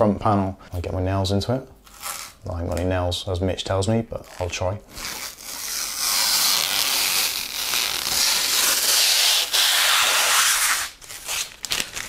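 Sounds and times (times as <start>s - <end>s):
plastic film being peeled off: 4.2s - 12.0s.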